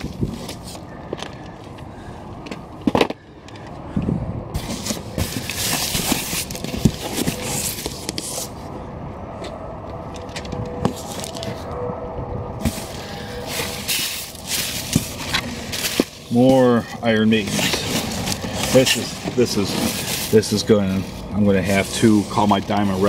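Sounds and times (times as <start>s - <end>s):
paper packing rustling: 4.6s - 8.6s, 10.4s - 11.7s, 12.6s - 23.0s.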